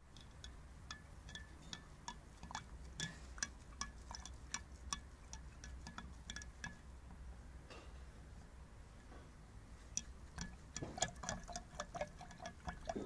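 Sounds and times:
stirring rod clinking on glass jar: 0:00.0 - 0:06.9, 0:09.8 - 0:13.0.

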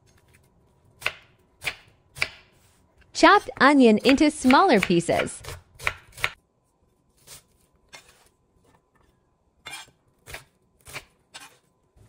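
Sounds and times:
knife chopping on wooden board: 0:01.0 - 0:02.5, 0:03.4 - 0:06.4.

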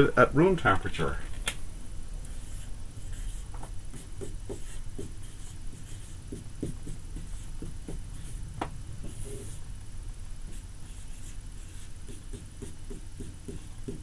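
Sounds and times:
steady low hum: 0:00.0 - 0:14.0
marker squeaking on whiteboard: 0:02.3 - 0:08.4, 0:09.0 - 0:09.6, 0:10.5 - 0:14.0.

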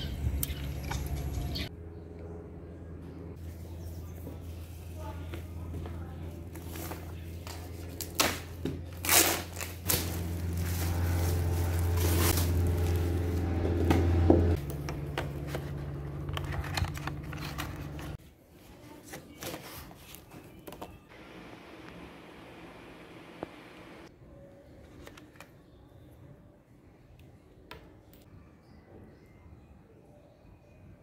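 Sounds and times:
plastic wrapping crinkling and tearing: 0:06.6 - 0:13.6
steady low hum: 0:21.1 - 0:24.1.

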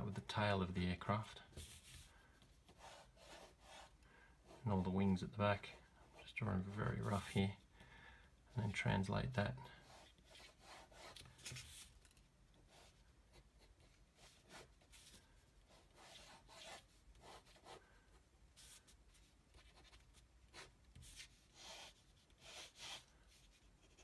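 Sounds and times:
ballpoint pen scratching on paper: 0:02.7 - 0:04.6, 0:09.8 - 0:11.8, 0:15.7 - 0:17.8, 0:19.5 - 0:24.0.

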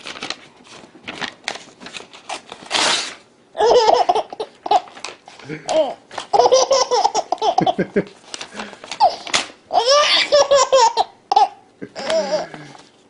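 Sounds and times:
paper tearing: 0:00.0 - 0:03.3
baby laughing: 0:03.6 - 0:05.0, 0:05.6 - 0:08.0, 0:09.0 - 0:12.5.

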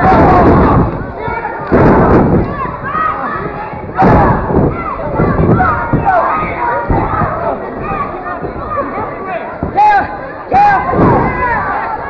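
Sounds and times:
thud: 0:00.0 - 0:02.8, 0:03.8 - 0:08.7, 0:10.8 - 0:11.6
crowd shouting and yelling: 0:00.0 - 0:12.0.

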